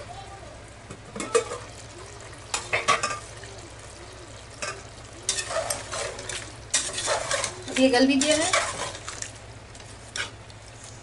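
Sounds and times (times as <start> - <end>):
spoon scraping and clinking pot: 4.6 - 9.0.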